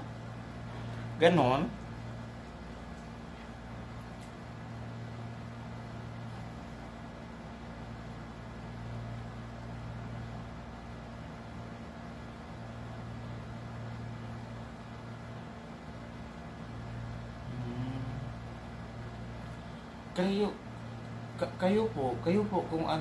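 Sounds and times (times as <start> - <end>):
low mechanical hum: 0.0 - 23.0.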